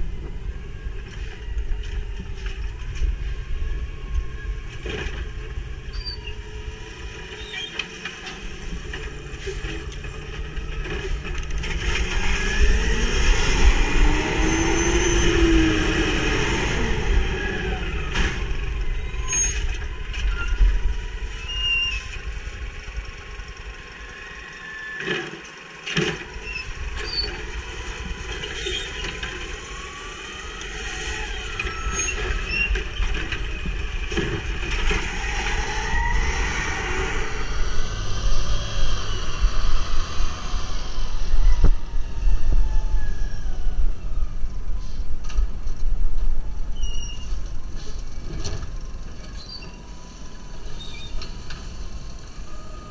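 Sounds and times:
garbage truck engine revving: 8.4 - 19.9.

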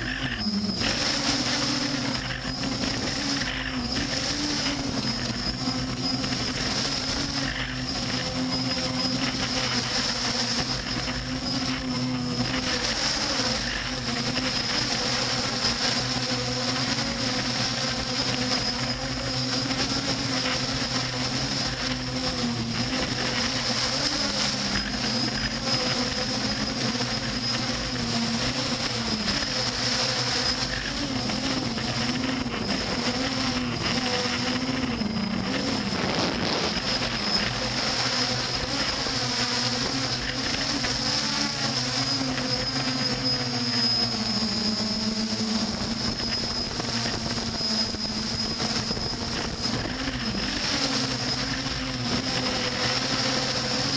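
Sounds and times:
aircraft propeller drone: 0.0 - 53.9.

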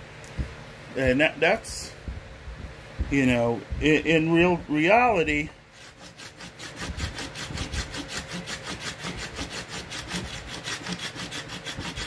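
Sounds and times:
stone scraper shaving wood: 5.8 - 12.0.

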